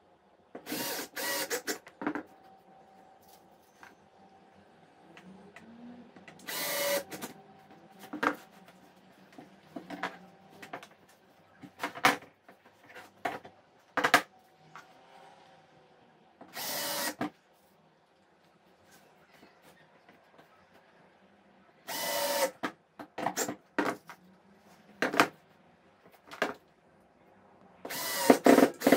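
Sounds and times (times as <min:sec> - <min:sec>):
drill-driver motor running: 0:00.7 - 0:01.8, 0:06.4 - 0:07.3, 0:16.5 - 0:17.2, 0:21.9 - 0:22.5, 0:27.9 - 0:28.9.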